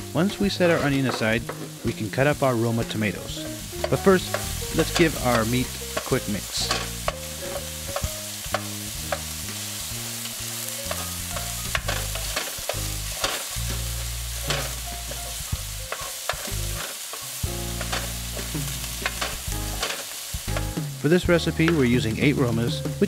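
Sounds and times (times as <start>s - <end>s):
low bass tones: 0.0s - 15.9s, 17.4s - 23.0s
meat sizzling in a frying pan: 0.0s - 23.0s
wooden spoon scraping a pan: 0.2s - 9.4s, 10.6s - 20.8s.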